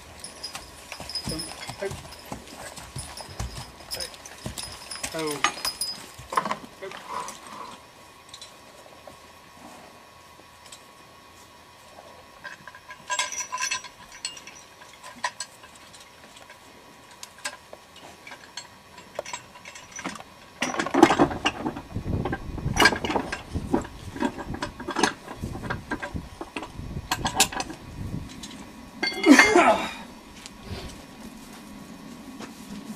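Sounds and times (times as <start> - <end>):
horse harness chains rattling: 0.0 - 8.6, 12.4 - 30.0.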